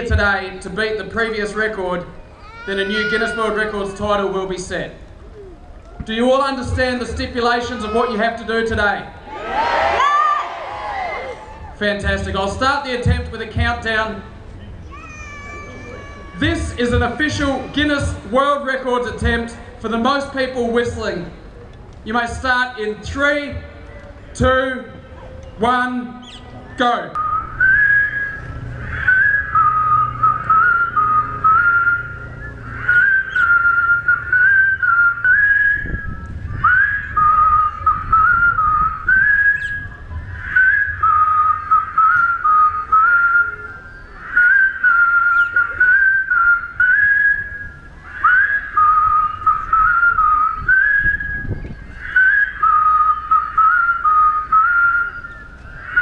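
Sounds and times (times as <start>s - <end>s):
crowd whistling a tune: 26.6s - 56.0s.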